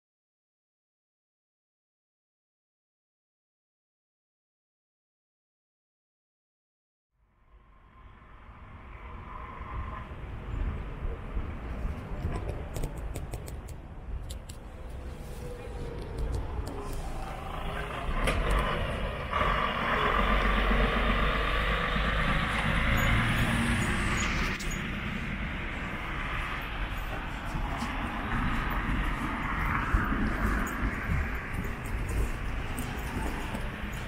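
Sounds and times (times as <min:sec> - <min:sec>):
road traffic passing: 0:07.2 - 0:34.0
truck passing: 0:14.6 - 0:34.0.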